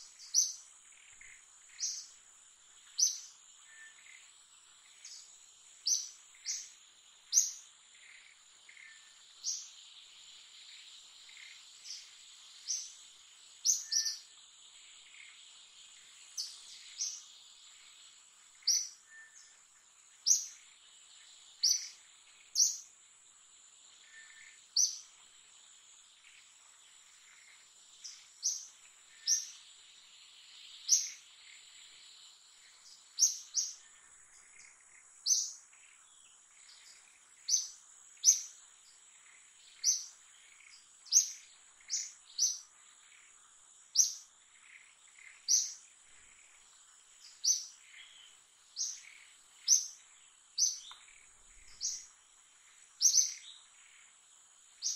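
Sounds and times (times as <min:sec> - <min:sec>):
high insect drone: 0:00.0 - 0:54.9
sharp bird chirps: 0:13.6 - 0:14.3, 0:21.6 - 0:22.9, 0:30.4 - 0:32.0, 0:39.3 - 0:43.3, 0:43.9 - 0:46.4, 0:47.2 - 0:50.0, 0:50.6 - 0:52.2, 0:53.0 - 0:53.7.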